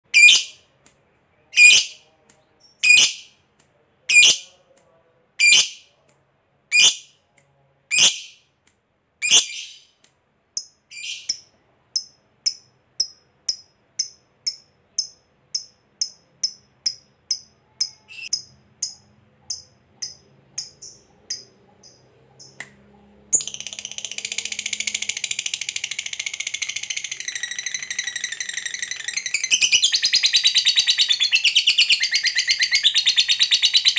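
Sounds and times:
lovebird chirps: 0.1 - 0.6, 1.4 - 3.4, 4.1 - 4.5, 5.4 - 5.9, 6.7 - 7.2, 7.9 - 8.5, 9.2 - 10.0, 10.6 - 22.7, 23.3 - 33.9
lovebird shrill chatter: 0.2 - 0.5.

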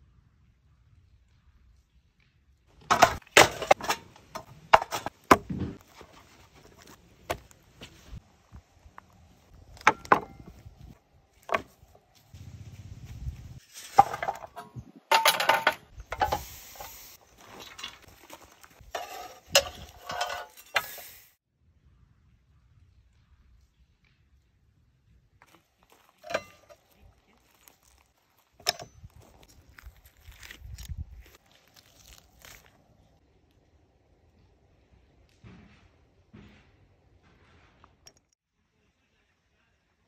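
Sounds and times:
metal grilling gear clattering: 2.8 - 5.2, 17.4 - 21.2, 26.0 - 26.8
rustling: 25.4 - 33.2.

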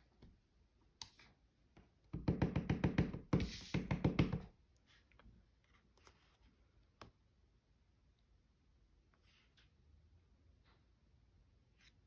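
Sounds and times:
stamp tapping on ink pad: 2.1 - 4.5.

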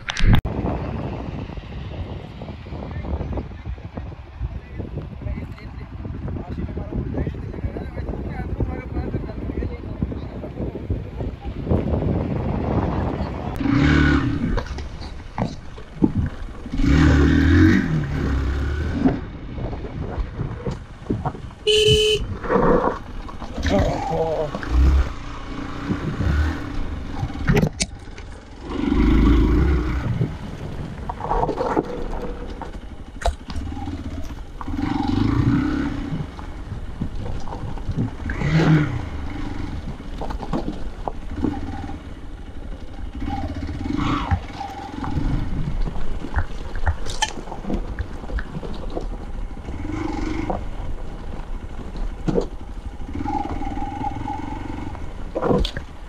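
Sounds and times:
motorcycle engine revving: 11.2 - 56.0
gravel knocking under tyres: 14.3 - 56.0.

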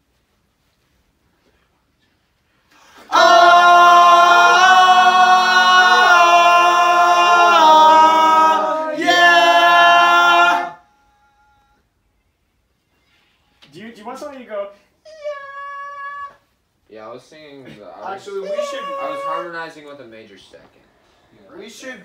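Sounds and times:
male voices singing a cappella: 3.0 - 10.8.

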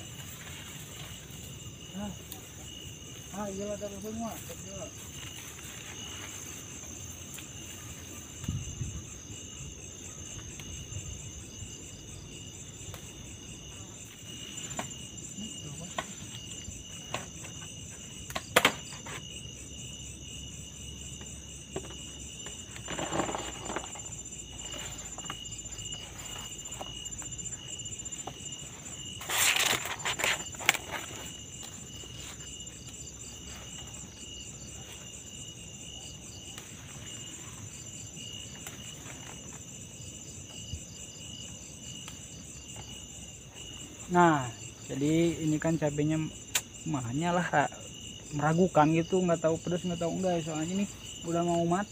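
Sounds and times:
rustling: 0.0 - 8.4, 22.4 - 35.3
crickets and insects trilling: 0.0 - 51.9.

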